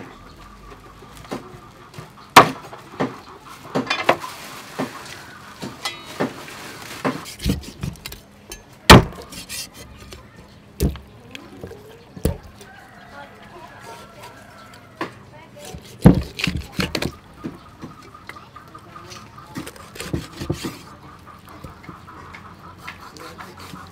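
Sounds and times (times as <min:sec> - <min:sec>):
cleaver chopping on block: 0:08.9 - 0:09.7, 0:15.6 - 0:17.1, 0:19.9 - 0:20.8.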